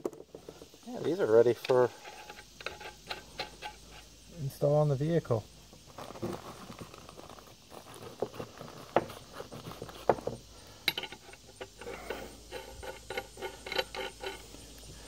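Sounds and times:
metal tools clicking on workbench: 0:10.9 - 0:14.5.

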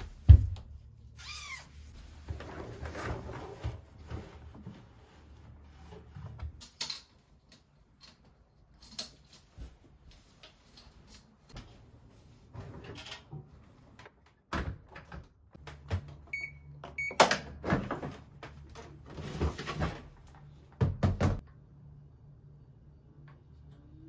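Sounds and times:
washing machine beeps: 0:16.3 - 0:17.3.

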